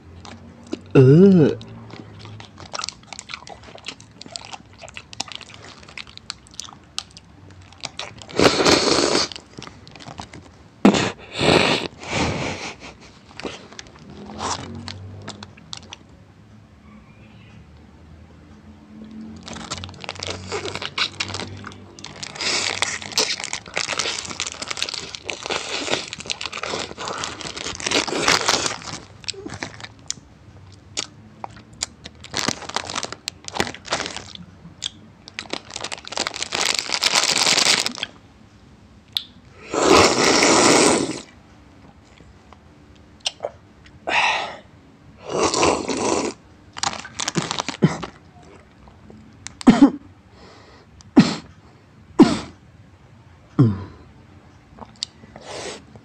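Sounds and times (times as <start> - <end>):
snack wrappers crackling and tearing: 0.1 - 1.0, 1.6 - 10.6, 11.7 - 16.1, 19.1 - 38.2, 45.5 - 49.7
crunching: 19.4 - 38.2, 46.8 - 48.8.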